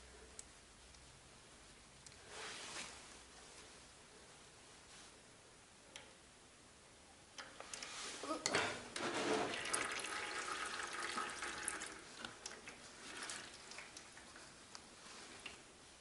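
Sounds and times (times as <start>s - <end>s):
oil pouring and trickling: 9.4s - 14.6s.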